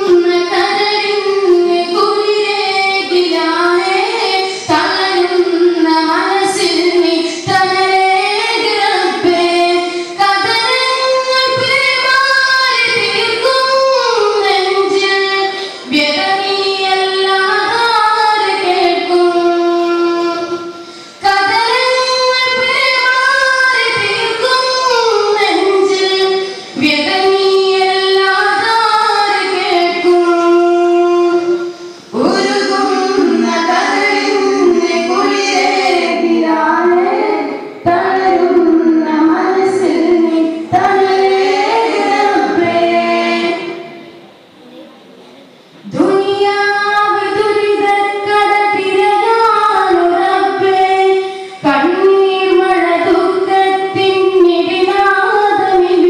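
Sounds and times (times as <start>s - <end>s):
boys singing together: 21.4s - 44.2s.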